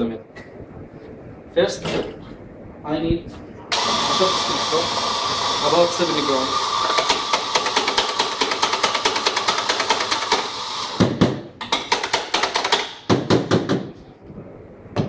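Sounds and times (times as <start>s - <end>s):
coffee grinder motor running: 3.7s - 11.0s.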